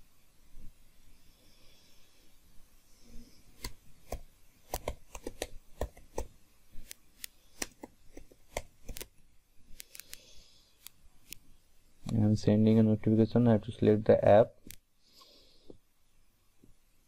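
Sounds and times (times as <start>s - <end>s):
computer keyboard typing: 3.6s - 6.3s.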